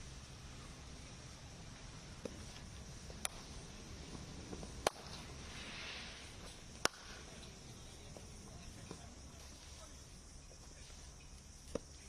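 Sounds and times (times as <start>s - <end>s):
steady background noise: 0.0s - 12.0s
cricket bat cracks hitting balls: 4.5s - 5.3s, 6.7s - 9.1s.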